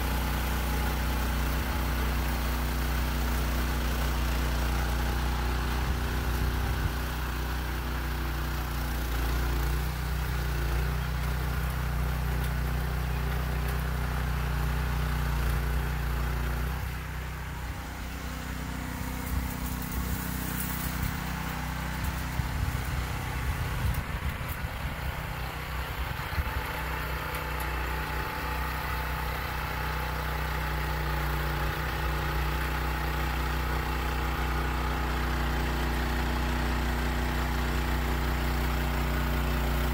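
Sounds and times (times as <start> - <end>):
rototiller engine running: 0.0 - 39.9.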